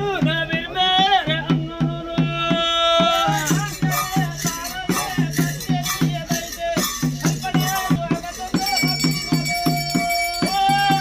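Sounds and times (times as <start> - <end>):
steady drum beat: 0.0 - 11.0
wind instrument melody: 8.4 - 11.0.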